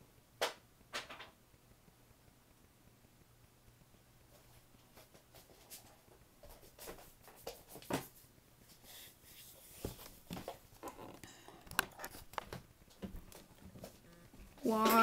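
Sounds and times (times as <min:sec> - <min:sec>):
faint clicks taps and rustles: 0:03.2 - 0:15.0.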